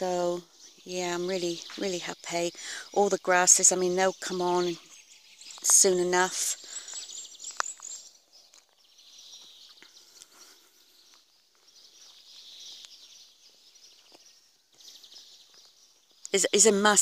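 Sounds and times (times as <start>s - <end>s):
birds chirping: 0.0s - 17.0s
footsteps on bark mulch: 5.4s - 16.3s.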